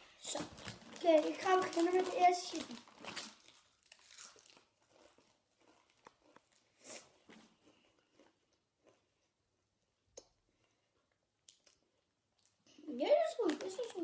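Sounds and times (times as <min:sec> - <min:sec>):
tortilla chip crunching: 0:00.4 - 0:09.2.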